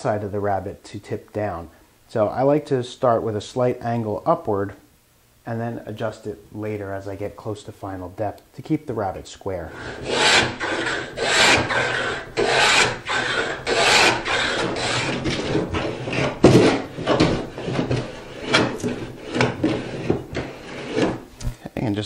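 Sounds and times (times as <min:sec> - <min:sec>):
hand plane rasping strokes: 0:09.7 - 0:21.3.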